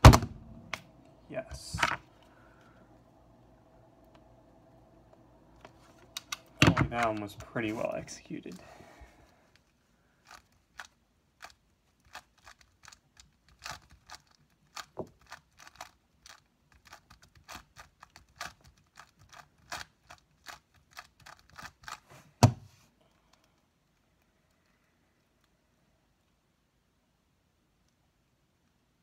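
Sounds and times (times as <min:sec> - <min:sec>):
puzzle cube layers clicking: 0:10.3 - 0:22.0.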